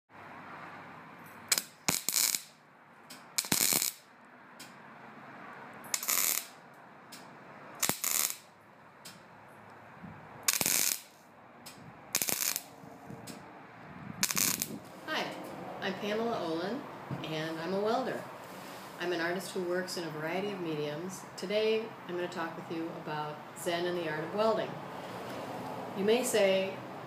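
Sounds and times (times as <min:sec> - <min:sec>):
welding arc crackling: 0:01.5 - 0:04.1, 0:05.8 - 0:06.6, 0:07.8 - 0:08.6, 0:10.4 - 0:12.8, 0:14.2 - 0:14.9.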